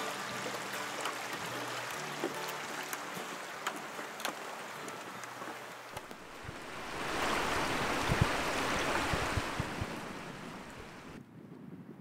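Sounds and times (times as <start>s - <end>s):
rocky river rushing: 0.0s - 11.2s
wind buffeting microphone: 6.1s - 12.0s.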